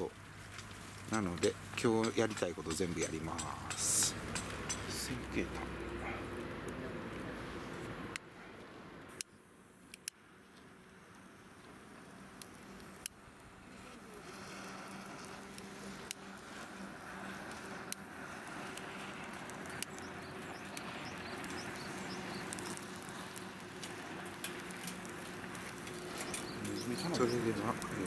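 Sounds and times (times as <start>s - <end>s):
charcoal crackles: 0.0s - 28.0s
hiss of flame: 12.0s - 28.0s.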